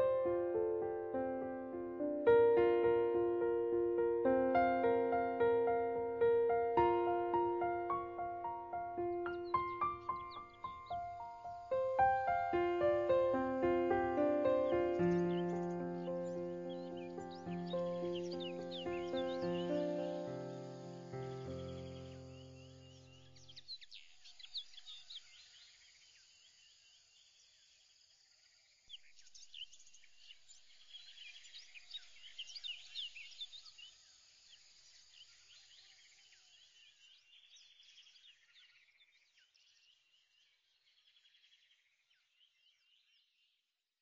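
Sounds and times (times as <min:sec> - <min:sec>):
low hiss: 0:00.0 - 0:23.4
high bird chirps: 0:04.6 - 0:25.0.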